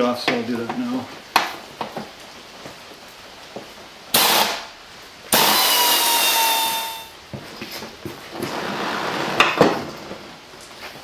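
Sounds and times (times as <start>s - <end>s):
handheld power tool whirring: 4.2s - 4.6s, 5.4s - 7.1s.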